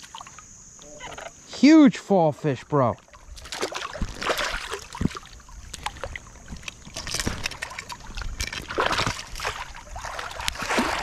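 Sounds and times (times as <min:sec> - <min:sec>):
water splashing: 0:02.4 - 0:11.0.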